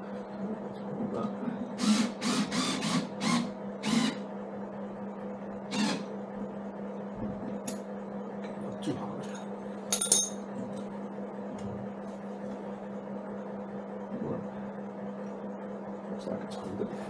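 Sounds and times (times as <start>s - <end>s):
steady low hum: 0.0s - 17.0s
metal part clinking: 9.9s - 10.4s.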